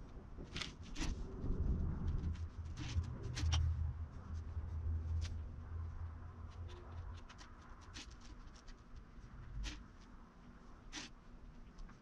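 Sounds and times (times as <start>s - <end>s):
low hum: 0.0s - 8.0s
fingers scratching clay: 6.5s - 11.8s.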